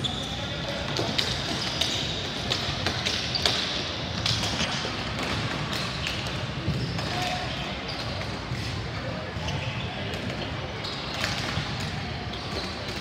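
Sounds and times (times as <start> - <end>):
hockey sticks and ball knocking: 0.7 - 7.4.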